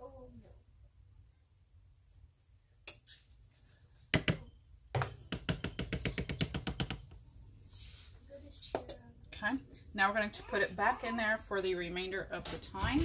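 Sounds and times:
spoon knocking on glass dish: 4.2s - 7.0s.

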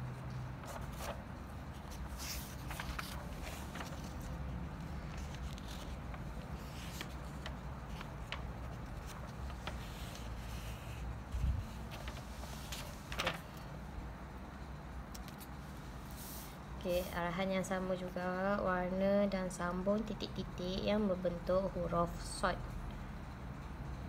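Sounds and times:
low steady hum: 0.0s - 24.0s
paper pages rustling: 0.6s - 13.7s.

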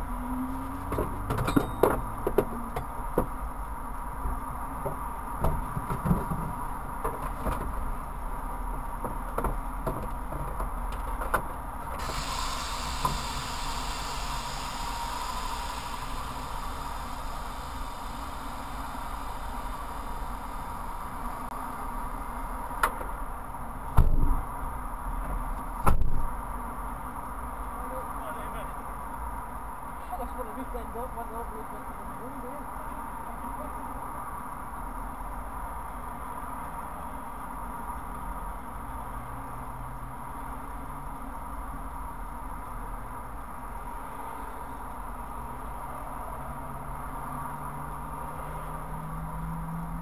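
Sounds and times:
steady hiss: 12.0s - 21.8s.

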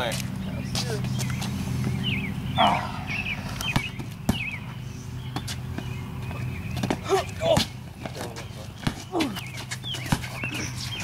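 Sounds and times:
steady low hum: 0.0s - 11.0s
bird chirps: 0.4s - 7.5s, 8.4s - 11.0s
basketball bouncing on concrete: 3.6s - 4.6s, 8.8s - 10.6s.

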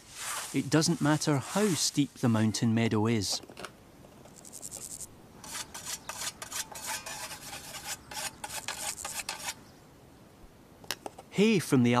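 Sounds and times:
scythe swishing through grass: 0.0s - 2.1s.

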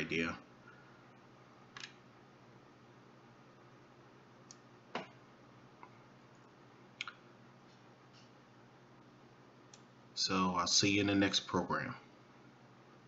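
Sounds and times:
low steady hum: 0.0s - 13.0s
computer mouse clicks: 1.7s - 2.0s.

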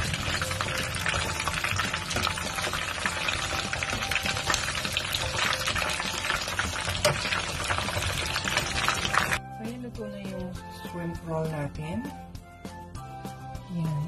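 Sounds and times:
spring rolls sizzling in oil: 0.0s - 9.4s.

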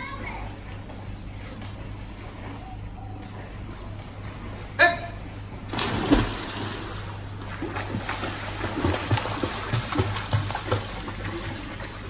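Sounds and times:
swimmers splashing: 3.3s - 12.0s.

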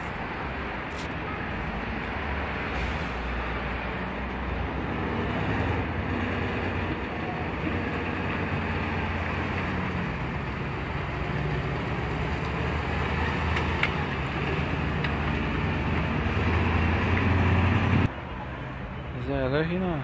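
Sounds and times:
diesel truck engine running: 0.0s - 18.1s
street noise: 0.0s - 20.0s.

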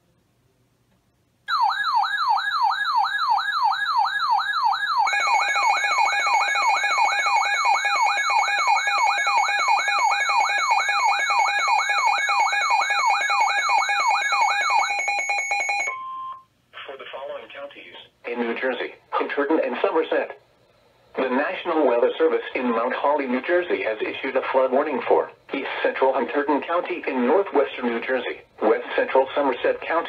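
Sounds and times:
siren-like alert tone sweeping: 1.5s - 16.3s
steady radio alert tone: 3.4s - 16.4s, 21.1s - 30.0s.

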